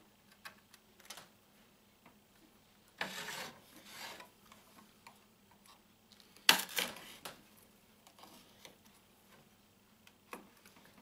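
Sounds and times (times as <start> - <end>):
knife scraping under a panel: 3.0 - 4.3.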